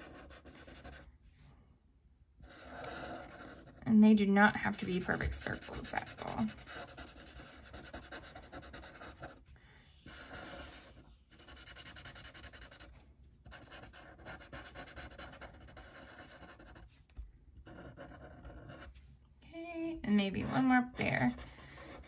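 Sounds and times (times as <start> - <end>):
marker scribbling on paper: 0.0 - 1.0, 2.4 - 3.8, 4.6 - 9.4, 10.1 - 12.9, 13.5 - 17.0, 20.3 - 22.0.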